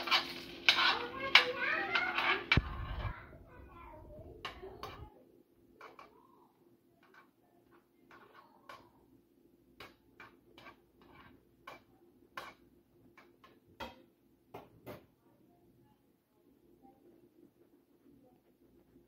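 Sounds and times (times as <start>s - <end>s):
butter crackling in skillet: 0.0s - 2.7s
faint steady hum: 11.3s - 19.0s.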